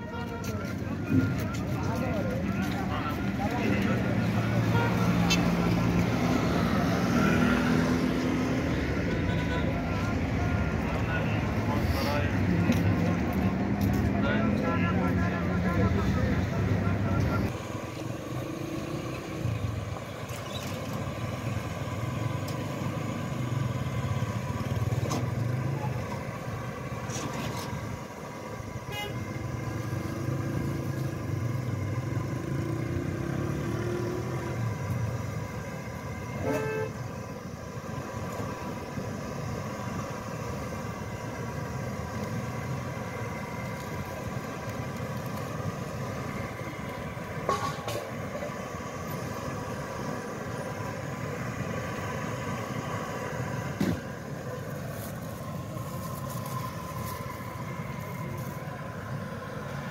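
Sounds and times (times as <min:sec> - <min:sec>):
vehicle engines passing: 0:00.0 - 0:59.9
car horn toot: 0:04.6 - 0:05.4, 0:09.1 - 0:10.0, 0:28.8 - 0:29.3, 0:36.4 - 0:37.0.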